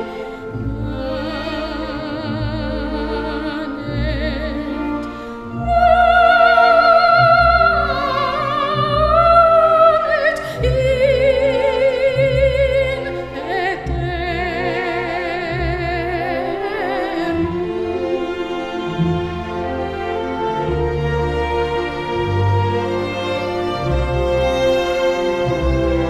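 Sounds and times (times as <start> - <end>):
string orchestra: 0.0 - 26.0
woman singing operatically: 0.7 - 5.0, 5.6 - 18.7.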